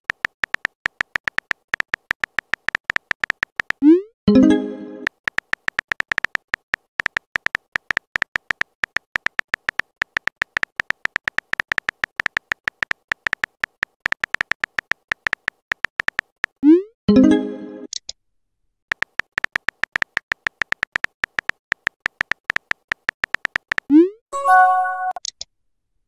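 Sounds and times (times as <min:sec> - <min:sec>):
phone keyboard typing clicks: 0:00.0 - 0:03.8, 0:05.0 - 0:16.6, 0:18.9 - 0:23.9
short chime: 0:24.4 - 0:25.2.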